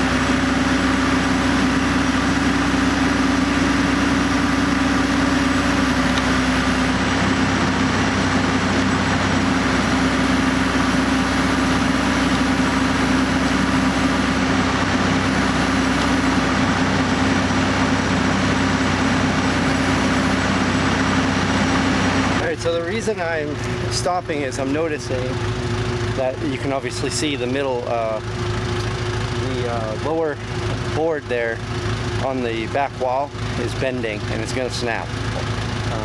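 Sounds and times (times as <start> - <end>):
backhoe engine running: 0.0 - 36.0.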